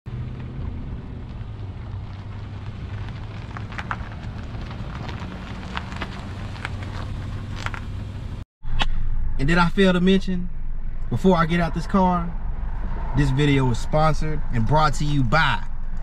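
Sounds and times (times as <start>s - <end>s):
tyres crunching gravel: 0.1s - 8.4s
car engine hum: 0.1s - 16.0s.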